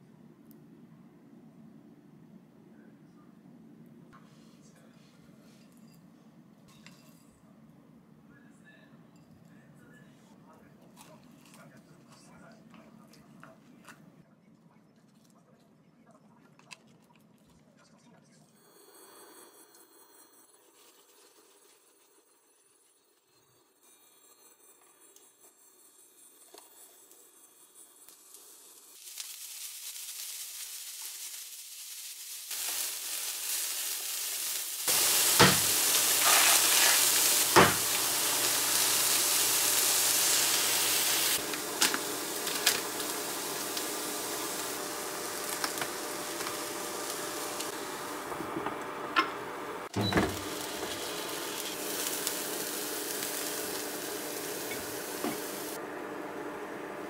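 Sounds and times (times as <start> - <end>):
food sizzling in a pan: 26.1 - 57.0.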